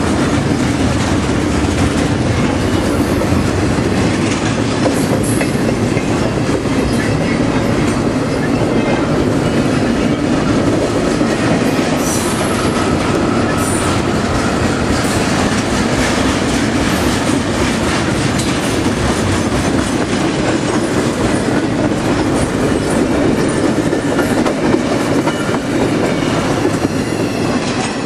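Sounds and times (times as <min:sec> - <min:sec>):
clickety-clack over rail joints: 0:00.0 - 0:28.0
train wheels rumbling on rails: 0:00.0 - 0:28.0.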